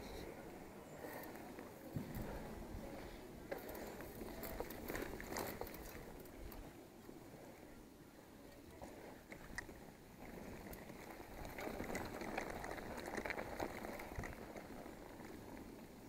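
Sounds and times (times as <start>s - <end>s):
bike tyres crunching on gravel: 0.9s - 6.6s, 9.8s - 16.0s.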